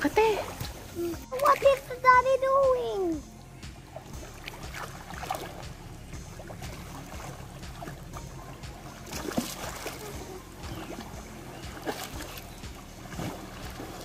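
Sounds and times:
water splashing and sloshing: 0.0s - 14.0s.

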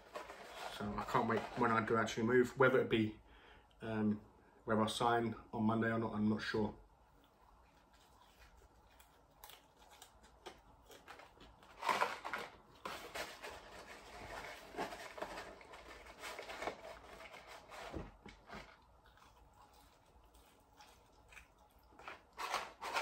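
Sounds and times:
man chewing chips: 7.1s - 13.2s, 18.4s - 23.0s.

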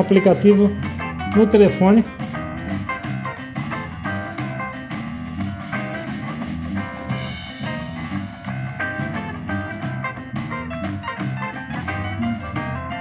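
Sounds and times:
guitar music with drum beat: 0.0s - 13.0s.

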